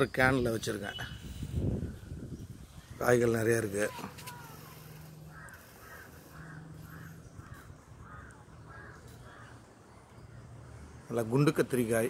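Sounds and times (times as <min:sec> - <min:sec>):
crow cawing: 0:03.8 - 0:09.8.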